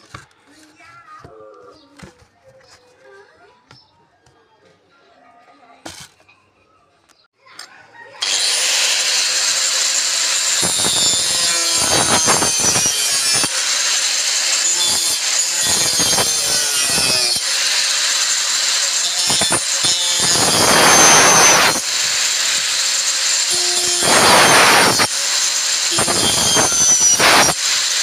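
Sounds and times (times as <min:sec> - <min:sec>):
angle grinder cutting plywood: 0:08.2 - 0:28.0.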